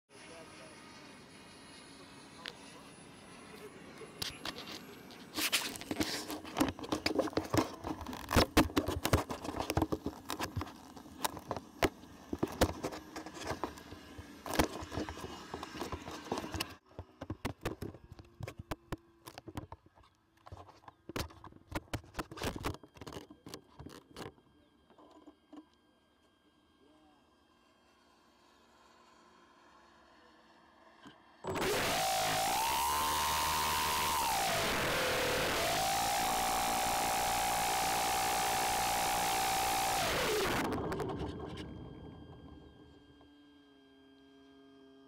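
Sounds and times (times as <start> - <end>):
handling noise on microphone: 4.2 - 18.7.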